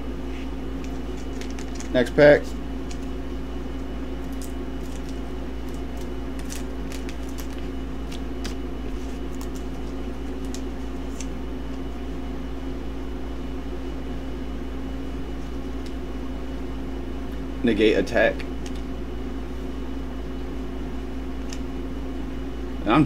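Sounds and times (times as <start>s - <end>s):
steady low hum: 0.0s - 23.0s
cards being handled: 0.3s - 3.1s, 4.2s - 11.9s.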